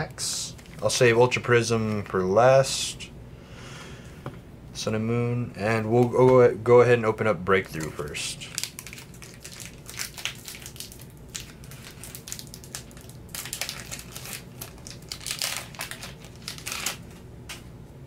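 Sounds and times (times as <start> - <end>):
foil wrapper crinkling: 0.5 - 2.3, 7.6 - 17.6.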